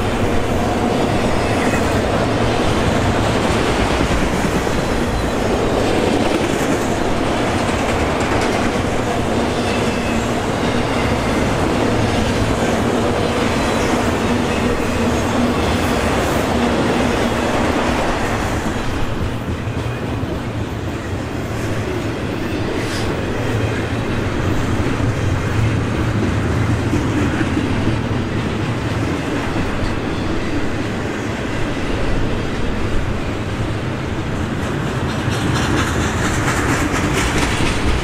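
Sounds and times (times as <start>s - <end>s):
freight train wheels on rails: 0.0s - 38.0s.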